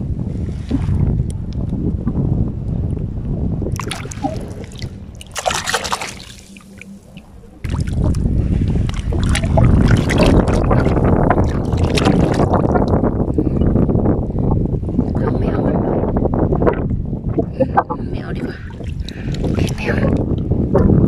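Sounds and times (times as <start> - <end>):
wind buffeting microphone: 0.0 - 21.0
seawater splashing: 3.7 - 12.9.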